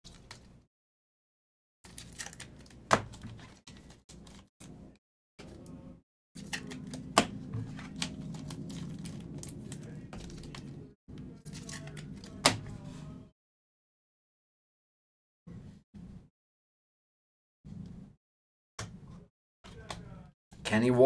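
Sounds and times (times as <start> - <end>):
wrapper crinkling and tearing: 1.9 - 2.8
cards shuffling: 6.4 - 10.8.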